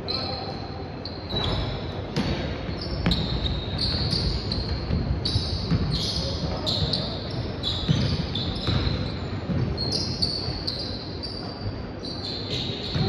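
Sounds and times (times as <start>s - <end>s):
sneakers squeaking on court: 0.0s - 13.0s
basketball bouncing on gym floor: 1.3s - 10.8s, 12.5s - 13.0s.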